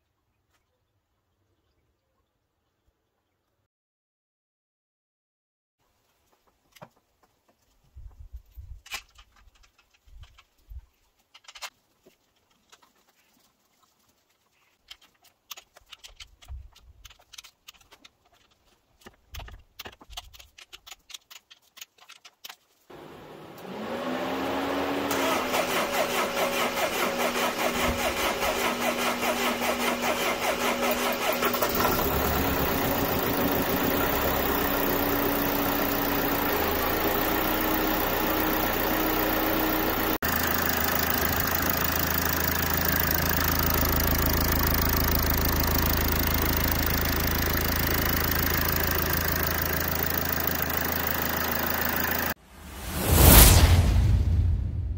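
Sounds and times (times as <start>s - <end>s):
diesel engine starting and idling: 22.9s - 52.4s.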